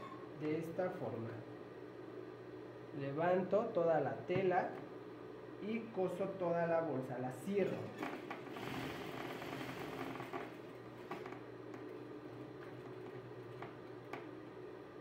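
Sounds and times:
sewing machine running: 0:08.0 - 0:11.4.

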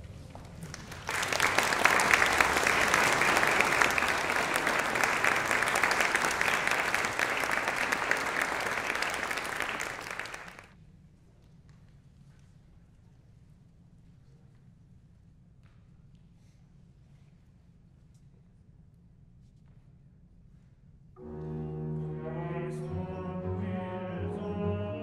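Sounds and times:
audience applauding: 0:00.6 - 0:10.7.

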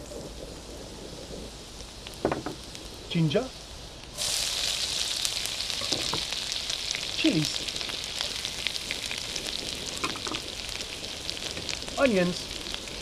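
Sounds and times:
garlic and ginger sizzling in oil: 0:00.0 - 0:13.0.

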